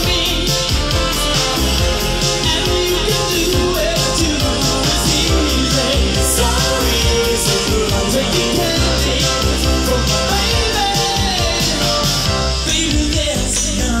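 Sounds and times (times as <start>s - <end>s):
live pop-rock band playing: 0.0s - 14.0s
man singing: 0.0s - 14.0s.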